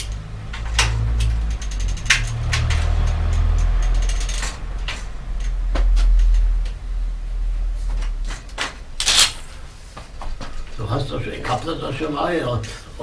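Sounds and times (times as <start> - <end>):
metal clicks and clinks: 0.0 - 5.6
bicycle clattering: 0.0 - 6.7
low rumble: 0.3 - 9.8.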